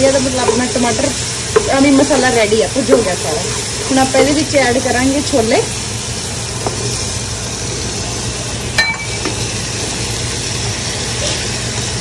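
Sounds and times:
masala sizzling in a pot: 0.0s - 12.0s
sharp ringing clink: 8.8s - 9.3s.

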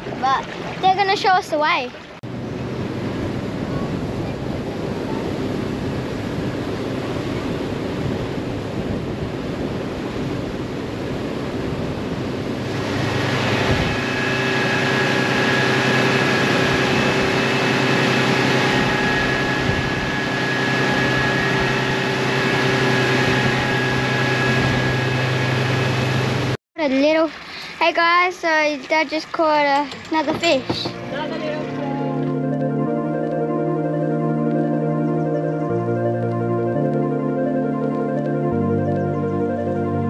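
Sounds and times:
outboard motor running: 0.0s - 27.8s
rush of wind and water: 0.0s - 31.8s.

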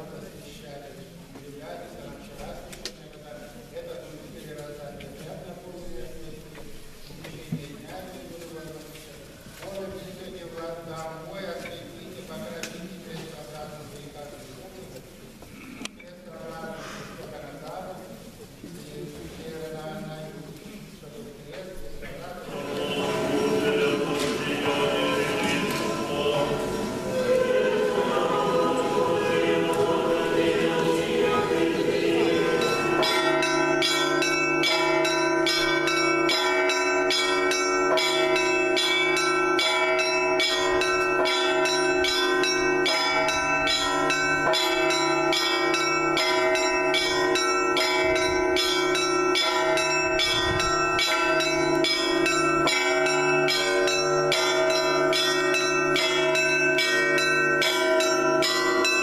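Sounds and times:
church bells pealing: 22.3s - 59.0s
choir singing in a church: 22.4s - 35.3s.

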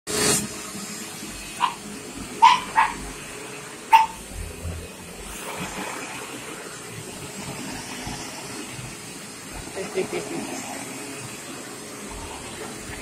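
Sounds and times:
vacuum cleaner drone: 0.1s - 13.0s
dog barking: 1.6s - 1.8s, 2.4s - 3.0s, 3.9s - 4.2s.

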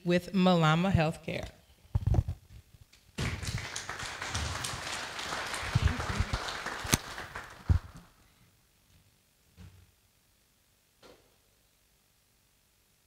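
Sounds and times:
audience applauding: 3.2s - 8.2s.

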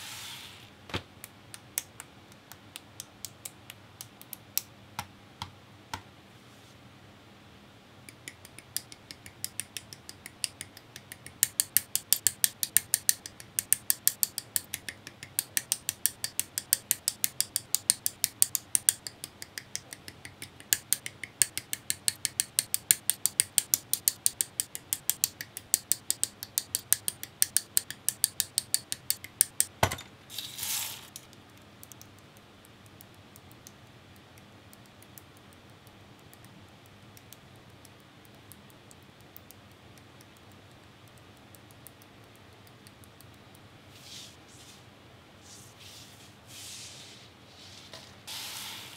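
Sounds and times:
short scrape: 0.0s - 0.7s, 45.4s - 48.9s.

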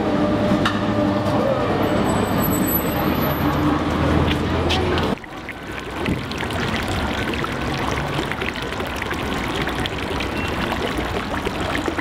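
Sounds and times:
fountain water splashing: 4.3s - 12.0s.

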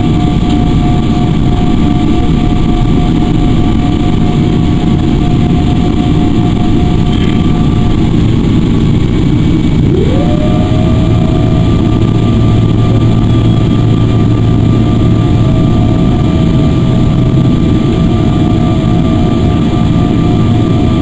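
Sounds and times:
jet engines rumbling and whining: 0.0s - 21.0s.

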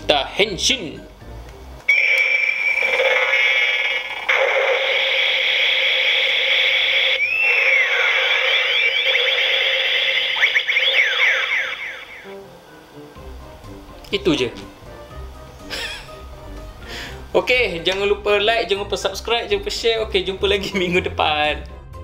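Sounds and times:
toy belt electronic sound effect: 1.9s - 12.4s.

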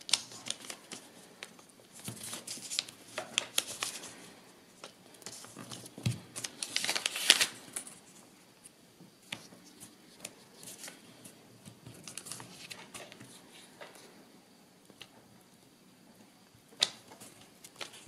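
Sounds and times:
paper rustling and crinkling: 0.0s - 8.3s, 9.2s - 14.1s, 16.8s - 18.0s.

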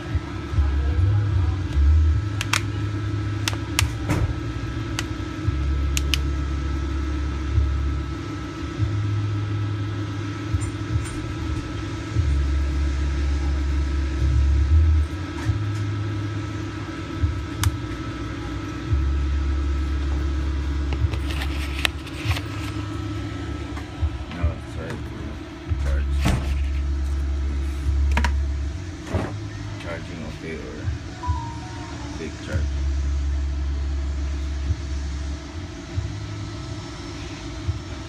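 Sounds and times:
low mechanical hum: 0.0s - 38.0s
sharp clicks and taps: 2.4s - 2.7s
constant higher tone: 4.4s - 38.0s.

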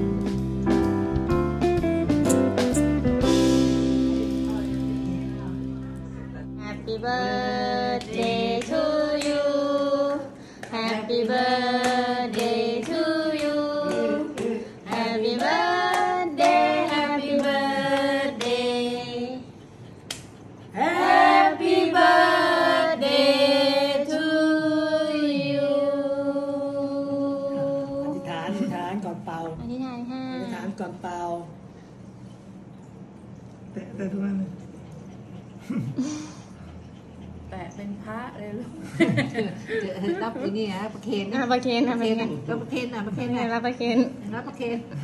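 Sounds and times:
group singing: 6.8s - 19.6s, 20.7s - 28.6s
people clapping in time: 7.9s - 9.4s.

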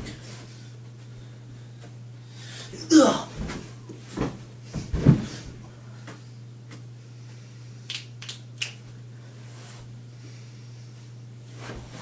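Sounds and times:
body thumping onto carpeted floor: 3.3s - 5.6s
sharp slaps or clicks: 7.9s - 8.8s.

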